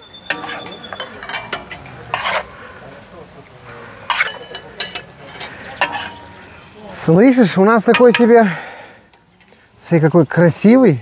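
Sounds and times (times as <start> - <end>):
metal skimmer scraping a pot: 0.1 - 2.5, 4.1 - 6.4.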